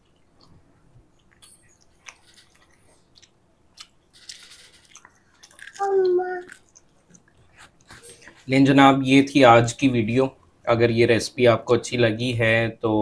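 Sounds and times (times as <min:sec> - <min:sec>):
people chewing: 0:00.0 - 0:08.5
child's short voiced sound: 0:05.8 - 0:06.5.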